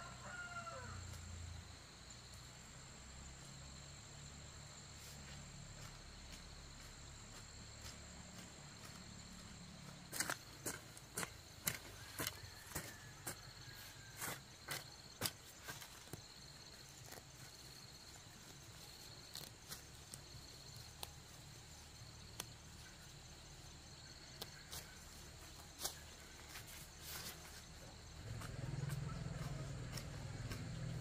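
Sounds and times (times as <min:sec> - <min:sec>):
insects chirping trill: 0:00.0 - 0:31.0.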